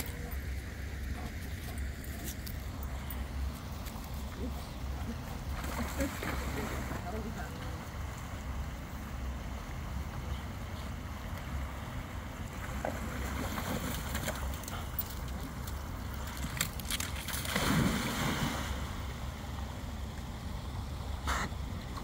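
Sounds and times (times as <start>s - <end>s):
creek water running over weir: 0.0s - 22.0s
dog splashing into water: 12.6s - 19.0s.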